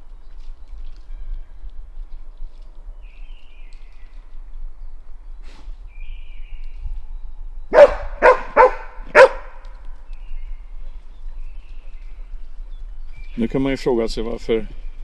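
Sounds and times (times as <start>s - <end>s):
dog barking: 7.7s - 9.6s.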